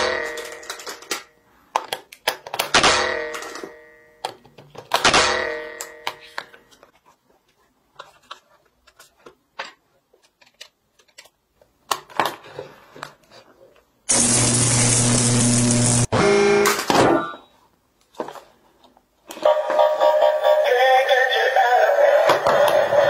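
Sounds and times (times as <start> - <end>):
plastic parts clicking: 0.3 - 2.8.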